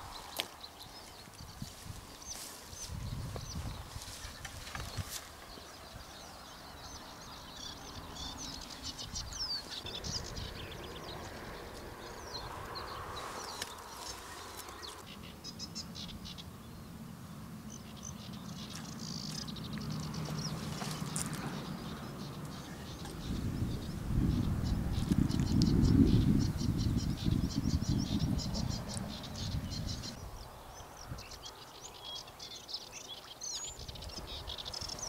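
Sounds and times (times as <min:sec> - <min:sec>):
rustling through bushes: 0:00.0 - 0:06.4, 0:11.6 - 0:15.1, 0:18.6 - 0:24.2
songbirds singing: 0:00.0 - 0:35.0.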